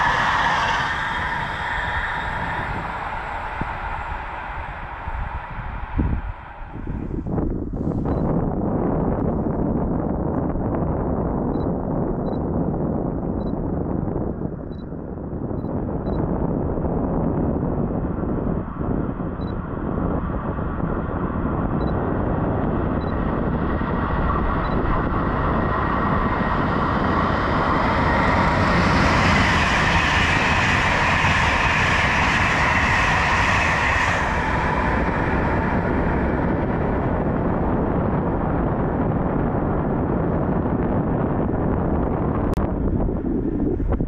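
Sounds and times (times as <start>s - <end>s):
train passing at speed: 0.0s - 8.3s, 17.4s - 39.9s.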